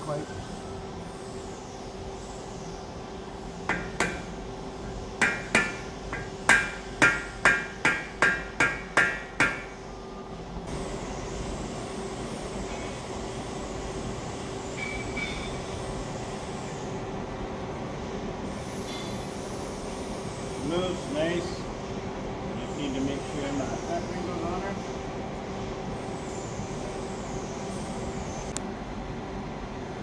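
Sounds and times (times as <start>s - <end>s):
shop hum: 0.0s - 30.0s
hammer striking metal: 3.7s - 4.3s, 5.2s - 9.7s.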